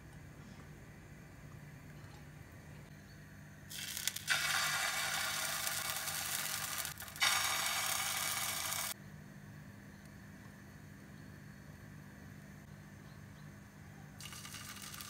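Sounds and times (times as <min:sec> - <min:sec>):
batter sizzling in frying pan: 0:03.7 - 0:09.0, 0:14.2 - 0:15.0.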